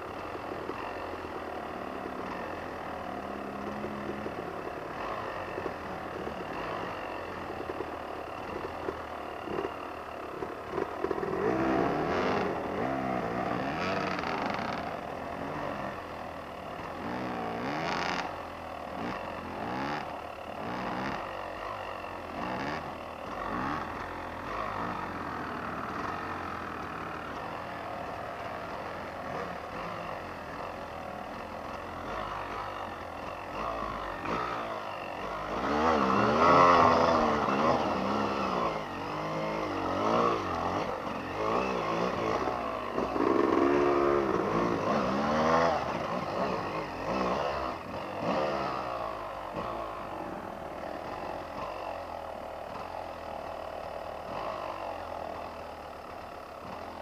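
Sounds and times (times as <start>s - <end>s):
motorcycle engines revving: 0.0s - 57.0s.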